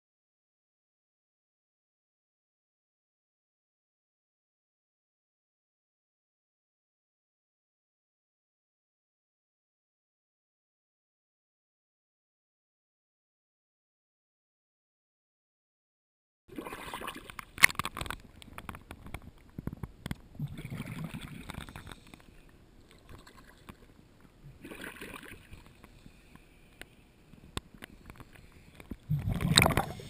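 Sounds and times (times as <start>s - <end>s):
water splashing against camera housing: 16.6s - 22.3s, 27.6s - 30.0s.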